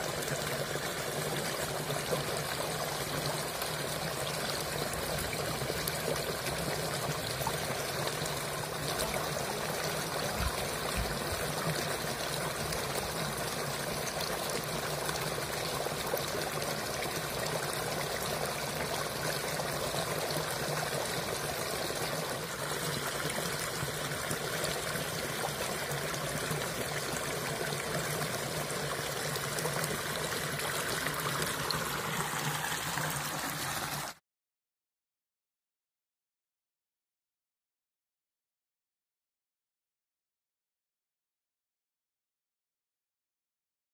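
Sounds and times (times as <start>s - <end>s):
water pouring and splashing: 0.0s - 34.2s.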